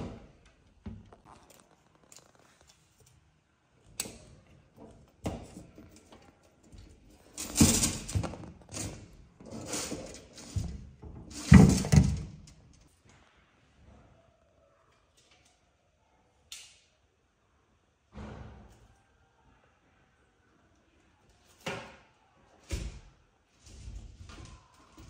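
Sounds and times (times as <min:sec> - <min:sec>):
glass cabinet knocking and rattling: 0:07.4 - 0:12.5.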